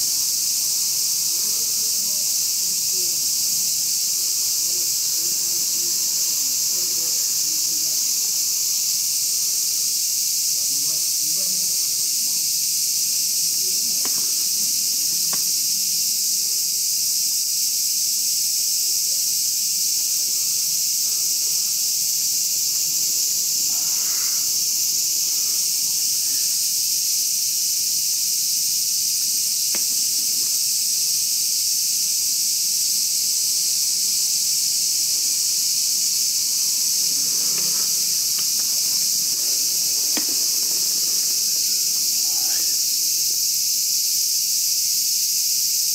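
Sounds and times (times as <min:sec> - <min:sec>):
insects chirring: 0:00.0 - 0:45.9
faint clicks: 0:36.6 - 0:42.0.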